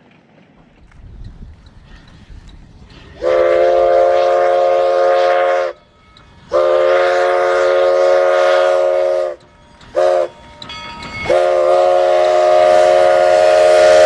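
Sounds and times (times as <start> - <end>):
steam locomotive whistle: 3.0 - 14.0.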